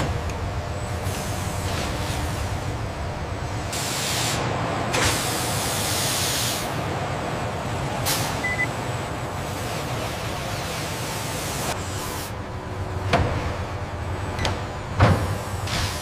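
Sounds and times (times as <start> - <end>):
factory machinery rumbling: 0.0 - 16.0
hiss bursts: 3.7 - 4.4, 5.0 - 6.7, 8.0 - 8.4.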